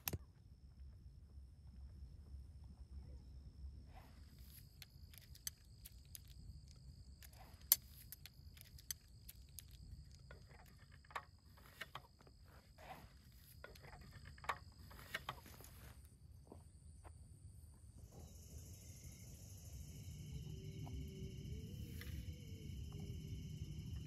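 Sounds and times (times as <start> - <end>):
high insect trilling: 4.3 - 15.6, 18.1 - 24.0.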